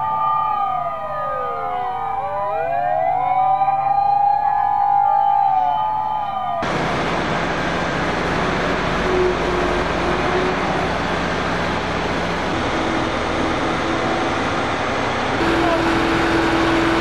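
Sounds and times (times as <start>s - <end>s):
vehicle rushing hum: 6.6s - 17.0s.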